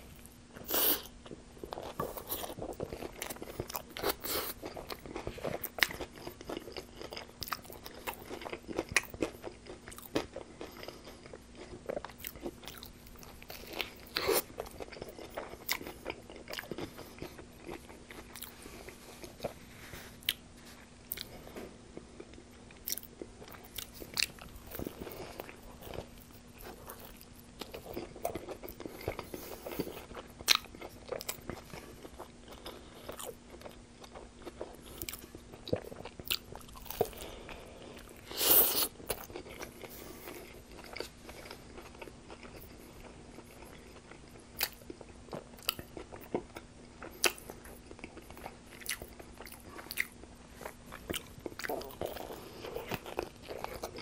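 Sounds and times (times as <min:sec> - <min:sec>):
biting and chewing crunchy wrap: 0:22.0 - 0:54.0.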